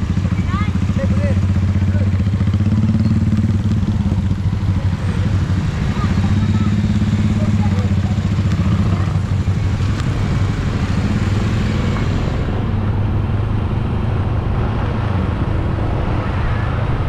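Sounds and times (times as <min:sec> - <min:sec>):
motorcycle engine running: 0:00.0 - 0:15.7
wind and road noise: 0:00.0 - 0:17.0.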